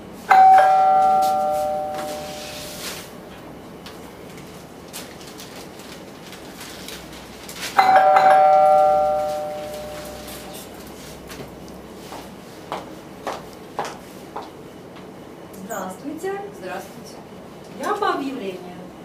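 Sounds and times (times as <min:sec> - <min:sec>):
doorbell chime: 0:00.3 - 0:02.9, 0:07.8 - 0:10.7
high-heel footsteps on tile: 0:11.2 - 0:15.1.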